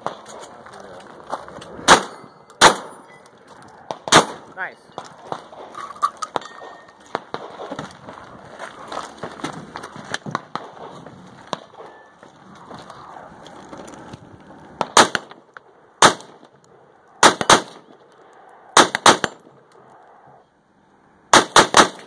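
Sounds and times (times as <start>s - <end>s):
gunshots: 1.8s - 3.0s, 3.9s - 4.5s, 14.8s - 15.4s, 16.0s - 16.4s, 17.2s - 17.8s, 18.8s - 19.4s, 21.3s - 22.0s
metallic clanging of targets: 5.8s - 7.1s.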